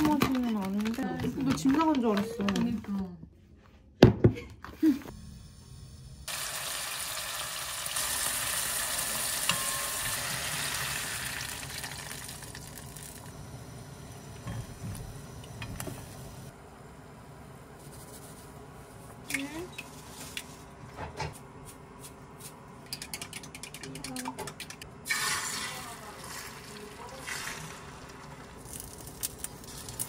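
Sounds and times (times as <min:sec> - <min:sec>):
broth boiling in a pan: 0:05.1 - 0:20.7, 0:25.0 - 0:30.0.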